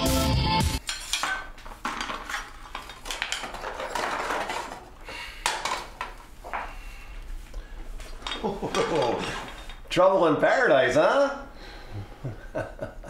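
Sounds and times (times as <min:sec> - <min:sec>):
small hard objects clattering: 0:00.9 - 0:06.2.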